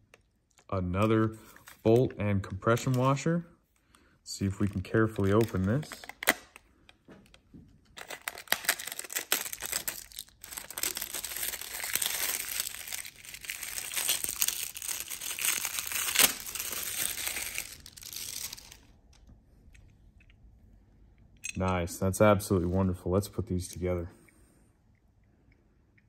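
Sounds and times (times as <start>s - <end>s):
plastic wrapping crinkling and tearing: 4.5s - 6.7s, 7.9s - 19.0s.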